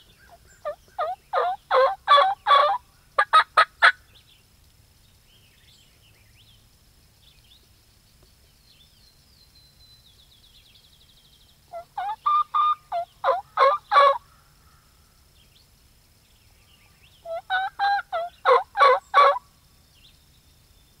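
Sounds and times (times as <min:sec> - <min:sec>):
turkey calls: 0:00.0 - 0:04.0, 0:11.7 - 0:14.3, 0:17.2 - 0:19.4
faint songbird chirps: 0:00.0 - 0:21.0.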